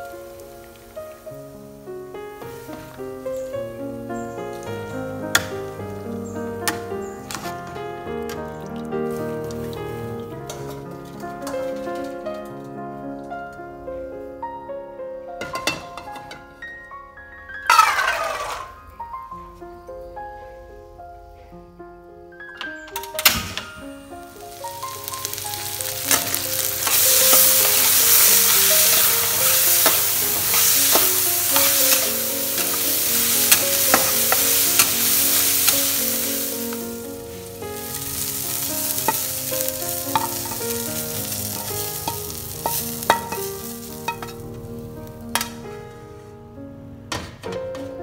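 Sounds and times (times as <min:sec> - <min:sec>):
food sizzling in a wok: 0:00.0 - 0:12.1, 0:17.7 - 0:18.6, 0:23.4 - 0:45.6
spatula scraping a pan: 0:17.7 - 0:18.8, 0:24.6 - 0:37.0, 0:37.8 - 0:44.4.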